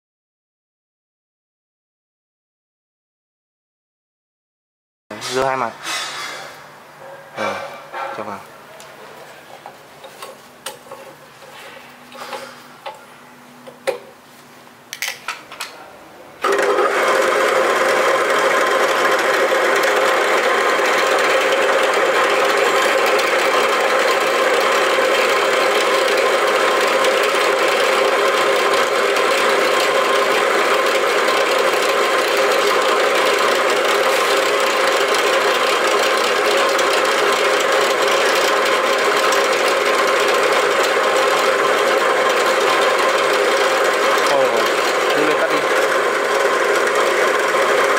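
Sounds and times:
drill press humming: 16.4 - 47.9.

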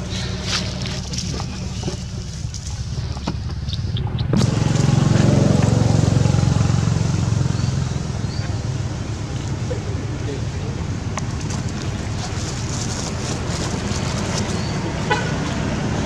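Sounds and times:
dry leaves rustling: 0.0 - 3.7, 11.2 - 15.8
engine running with low hum: 0.0 - 16.0.

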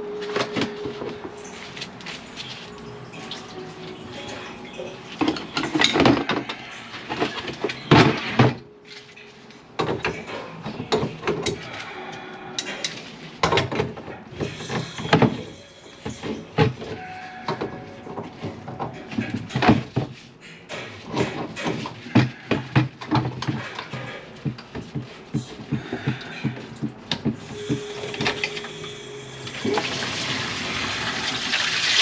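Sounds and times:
plumbing parts knocking and clattering: 3.1 - 11.9, 12.6 - 28.7.

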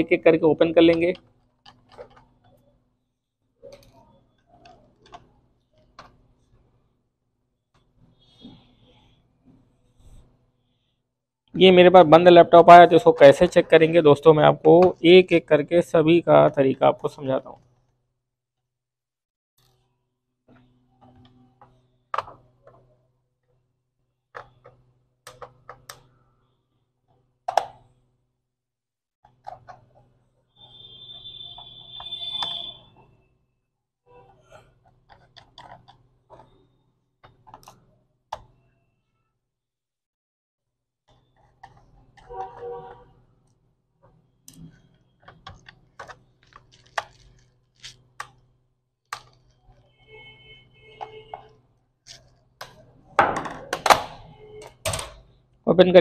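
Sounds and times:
screwdriver clicks and scrapes: 44.5 - 48.4.

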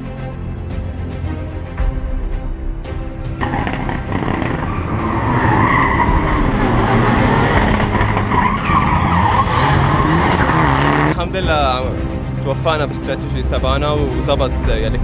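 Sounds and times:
rally car engine revving hard: 3.4 - 11.2
tyres squealing: 3.5 - 11.1.

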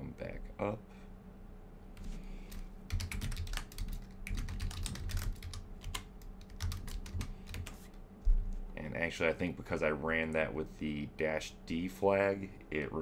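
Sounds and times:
typing on computer keyboard: 2.9 - 7.8.

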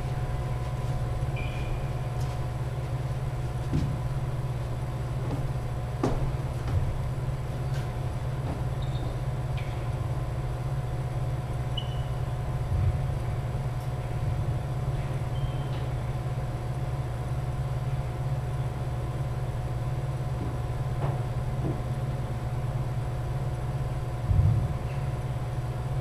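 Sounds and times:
low hum of indoor hall: 0.0 - 26.0
sneakers squeaking on wooden floor: 1.3 - 2.0, 7.6 - 9.8.

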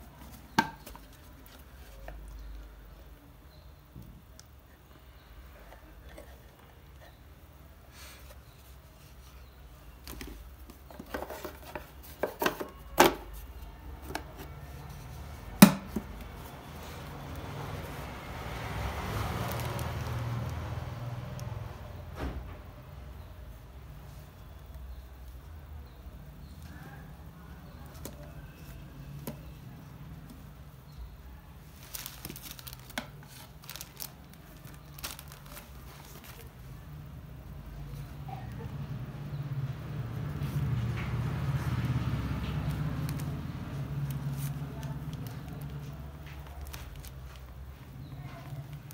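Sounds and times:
plastic wrapping crinkling: 18.8 - 20.8, 31.0 - 38.1, 40.1 - 48.9.

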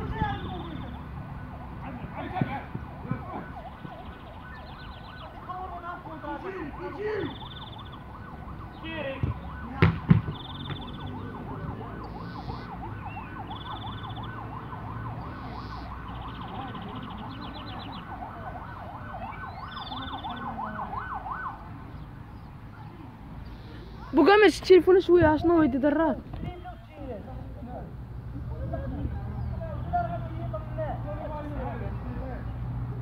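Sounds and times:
siren yelping: 0.0 - 21.8, 23.8 - 24.4.

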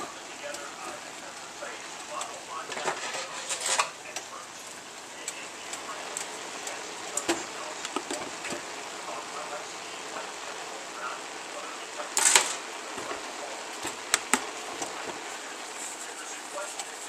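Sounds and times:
plastic spoon scraping a pot: 2.8 - 3.9.

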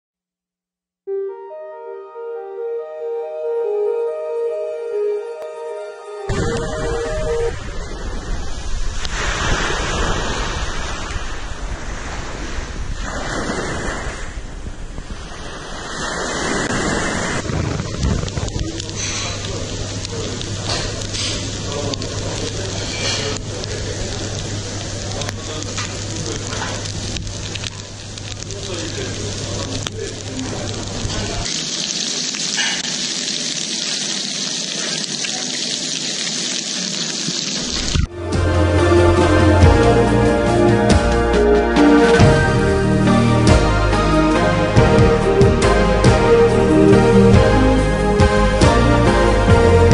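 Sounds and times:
music: 1.0 - 7.6, 38.1 - 49.9
wind buffeting microphone: 6.3 - 18.8
surf breaking on a beach: 7.5 - 18.9
prawns sizzling in butter: 17.8 - 38.1.

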